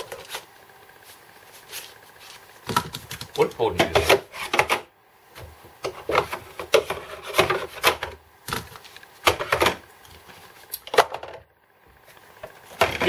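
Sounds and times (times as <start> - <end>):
plastic parts clattering and scraping: 5.8 - 9.8, 12.7 - 13.0.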